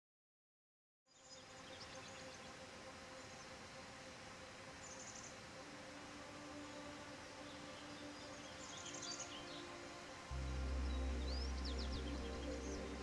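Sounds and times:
low hum: 0:10.3 - 0:13.0.

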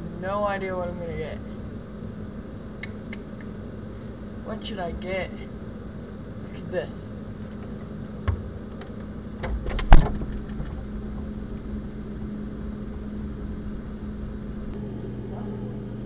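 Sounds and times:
steady low hum: 0:00.0 - 0:16.0
freezer door thud: 0:09.4 - 0:11.0.

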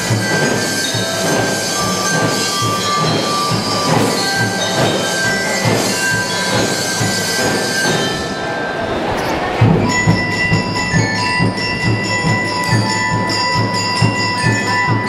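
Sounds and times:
crowd noise: 0:01.8 - 0:15.0
long high tones: 0:07.6 - 0:14.2.

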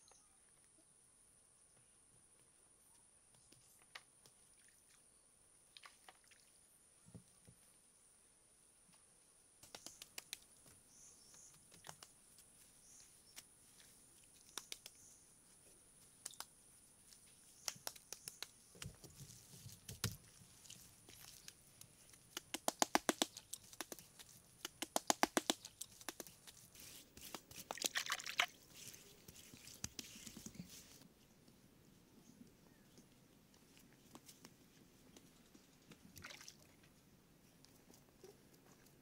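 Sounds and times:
light sharp clicks and taps: 0:14.3 - 0:15.0.

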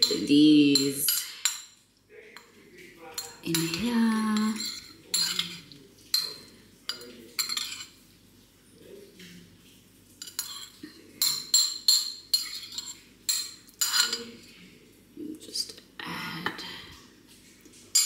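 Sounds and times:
metal spoon clinking against bowl: 0:00.0 - 0:01.8, 0:02.4 - 0:08.0, 0:10.2 - 0:14.5.

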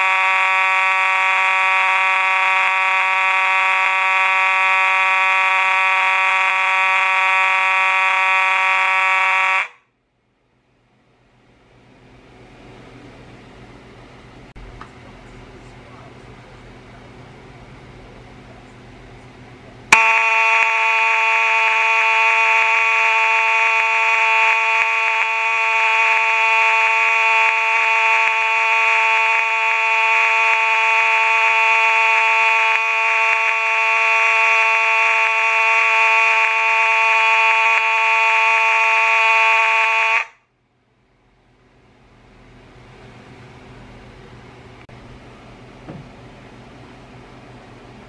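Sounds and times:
fire alarm buzzing horn: 0:00.0 - 0:09.9, 0:19.9 - 0:40.5.

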